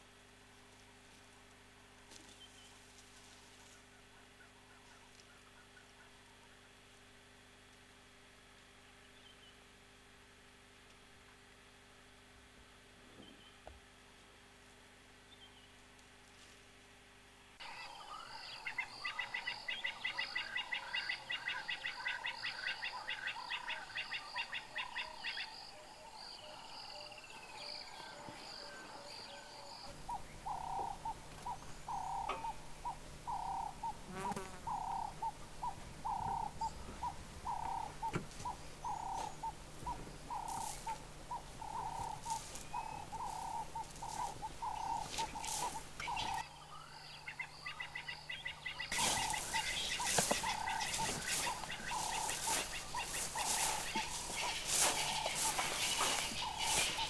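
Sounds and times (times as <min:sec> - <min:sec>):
low steady hum: 0:00.0 - 0:57.0
high trilling bird chorus: 0:26.2 - 0:34.0, 0:34.7 - 0:57.0
mid-pitched bird call: 0:40.3 - 0:57.0.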